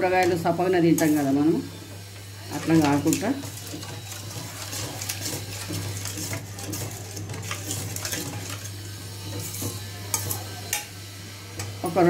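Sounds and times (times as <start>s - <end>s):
spoon scraping steel pan: 2.5s - 10.9s.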